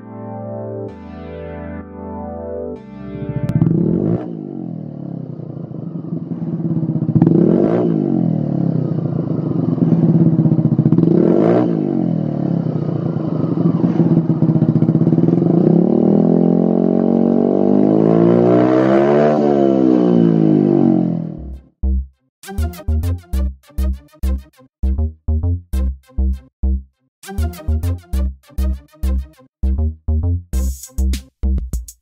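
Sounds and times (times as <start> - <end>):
scooter engine revving: 3.3 - 21.6.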